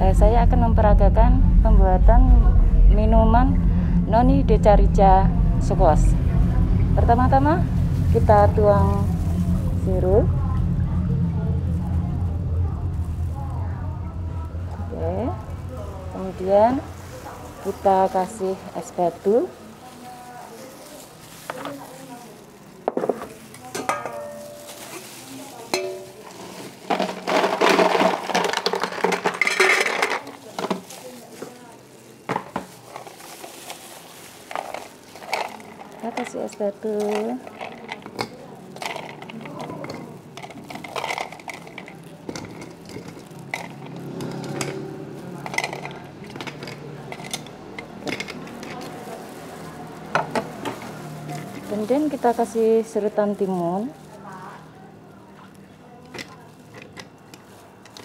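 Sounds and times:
steady low hum: 0.0 - 19.8
ice cubes clattering into bowl: 20.7 - 53.1.

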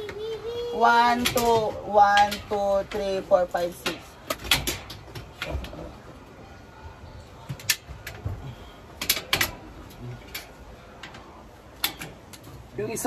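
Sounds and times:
metal parts clicking and tapping: 0.9 - 5.6, 9.0 - 12.6.

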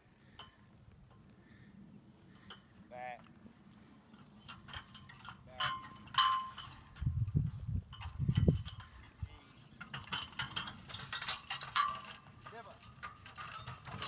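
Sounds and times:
cart and harness clanking: 2.2 - 14.0.

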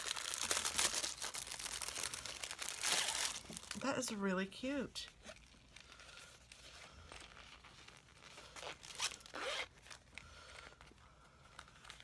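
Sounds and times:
faint handling of fabric pouch: 5.1 - 12.0
zipper strokes: 6.4 - 10.0.

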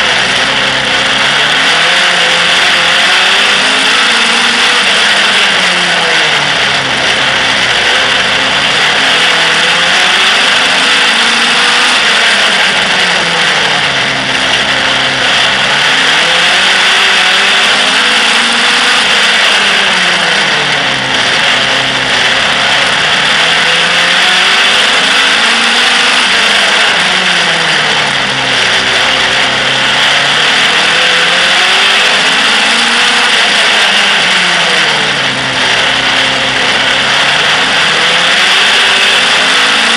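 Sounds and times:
noisy rasp: 0.0 - 39.9
stock car engine racing: 0.0 - 39.9.

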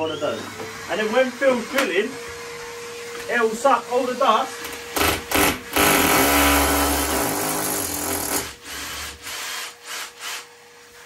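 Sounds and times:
vacuum cleaner running: 0.0 - 11.0
power drill boring into wall: 4.6 - 10.5.

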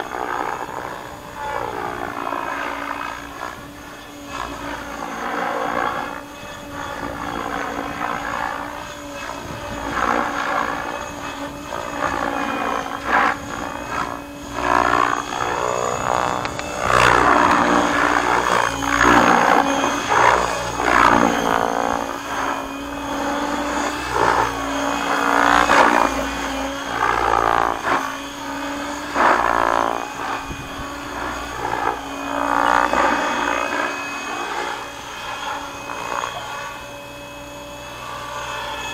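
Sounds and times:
rc helicopter rotor and motor: 0.0 - 38.9.

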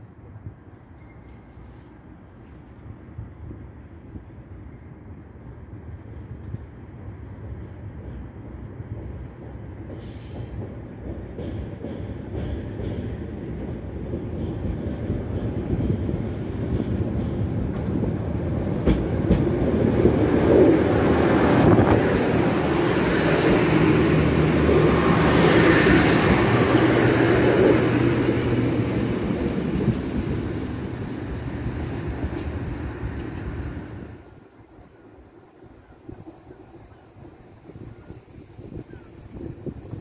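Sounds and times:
train wheels on rails: 6.0 - 40.0.

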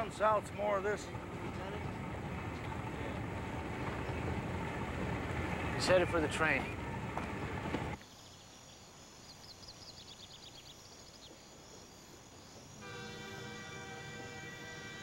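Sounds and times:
low outdoor rumble: 0.0 - 8.0
crickets chirping: 6.7 - 15.0
train horn: 12.8 - 15.0.

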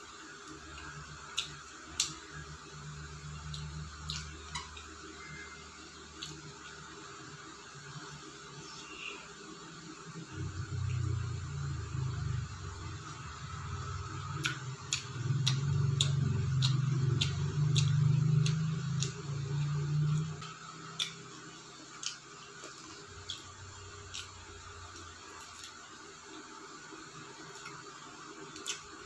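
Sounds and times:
chewing fried chicken: 0.1 - 5.1, 13.9 - 29.0
low hum: 0.6 - 21.7
wet mouth-smacking clicks: 14.4 - 19.2.

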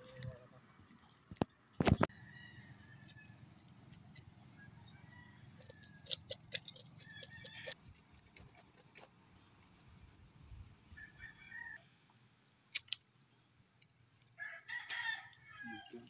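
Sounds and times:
blade scraping fish scales: 5.6 - 9.0.

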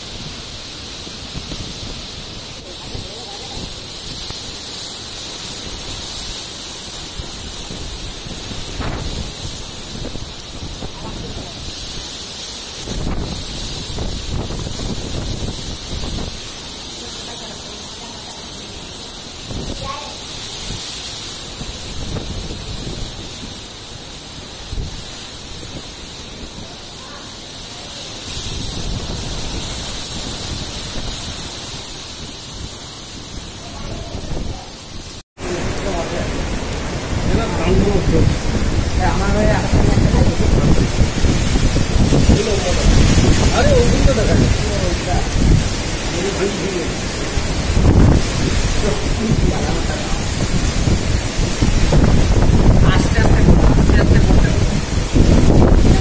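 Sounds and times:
wind gusts on microphone: 0.0 - 56.0
wind rushing: 0.0 - 56.0.

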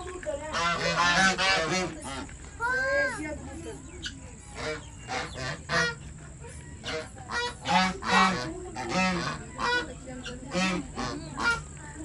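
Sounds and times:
geese honking: 0.5 - 2.3, 4.0 - 6.2, 6.8 - 11.8.

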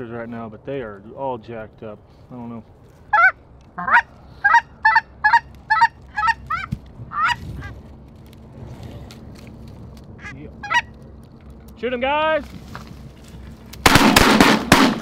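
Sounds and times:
goose honking: 3.1 - 7.8, 10.2 - 11.0.

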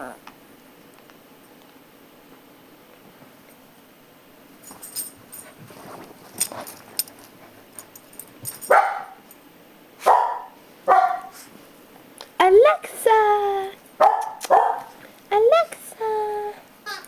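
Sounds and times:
dog barking: 8.6 - 9.2, 10.0 - 11.5, 14.0 - 15.0.

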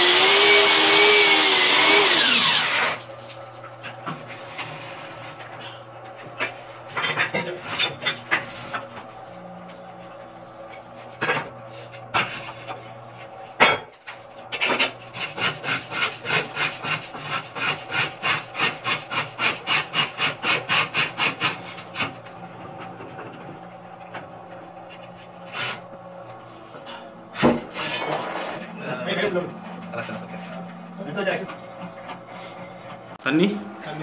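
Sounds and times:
core drill humming: 0.0 - 3.0.

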